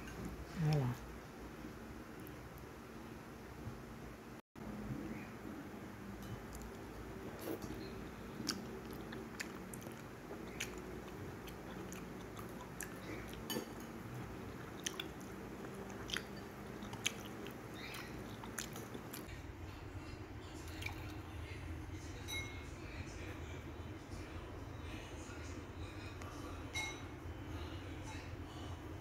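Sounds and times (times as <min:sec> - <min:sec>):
faint steady hum: 0:00.0 - 0:29.0
person chewing noodles: 0:06.3 - 0:19.3.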